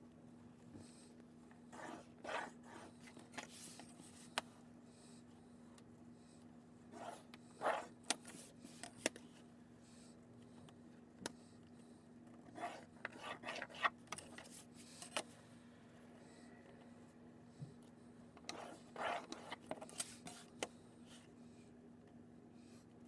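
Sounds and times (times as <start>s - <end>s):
pencil scratching on paper: 1.7s - 4.2s, 6.9s - 8.6s, 12.5s - 14.7s, 18.4s - 20.5s.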